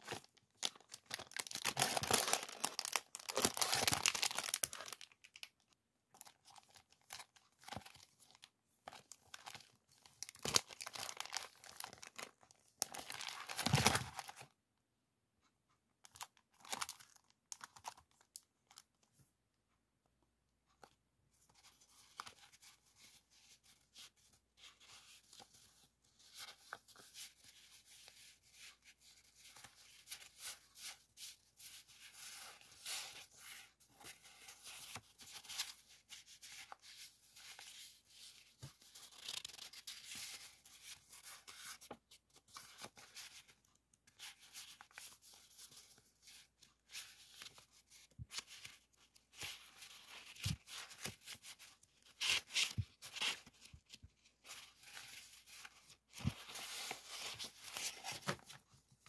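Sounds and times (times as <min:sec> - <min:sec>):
paper sheets rustling: 0:44.3 - 0:58.7.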